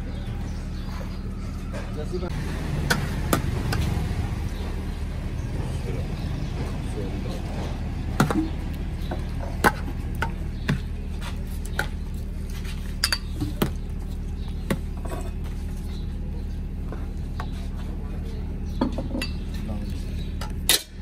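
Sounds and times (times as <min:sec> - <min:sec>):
low background hum: 0:00.0 - 0:21.0.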